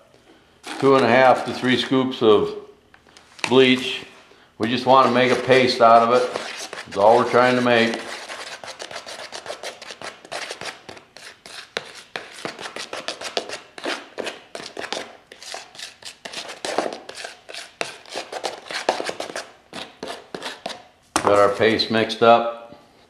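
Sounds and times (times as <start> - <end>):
stirrer scraping plastic container: 0.6 - 1.9, 4.6 - 21.6.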